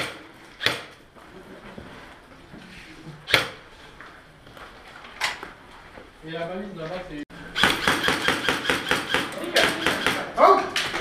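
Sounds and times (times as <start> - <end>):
airsoft gun shots: 0.0 - 0.9, 3.3 - 3.6, 7.6 - 10.4.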